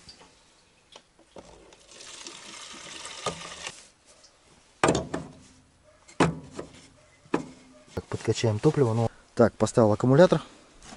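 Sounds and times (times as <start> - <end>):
petrol gurgling into fuel tank: 1.7 - 3.8.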